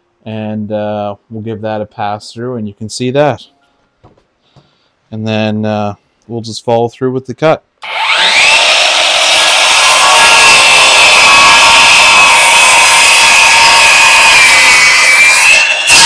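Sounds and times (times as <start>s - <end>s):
circular saw motor whine: 7.8s - 16.0s
saw blade cutting wood: 7.8s - 16.0s.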